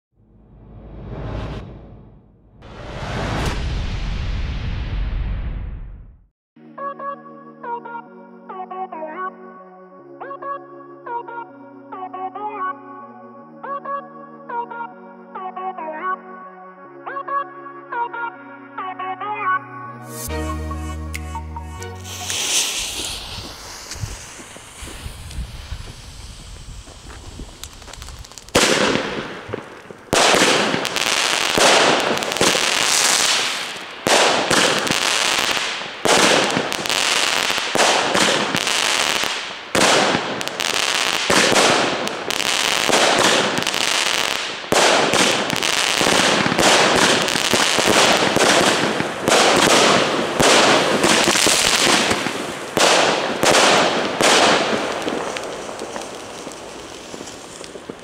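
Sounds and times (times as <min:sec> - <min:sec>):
firework shots bursting: 0:22.0 - 0:58.0.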